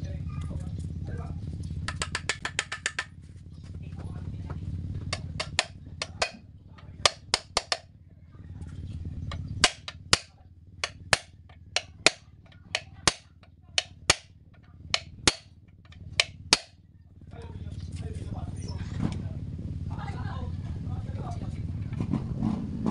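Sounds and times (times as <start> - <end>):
hammer striking metal punch: 5.1 - 6.4, 7.0 - 7.8, 9.3 - 14.3, 15.0 - 16.7.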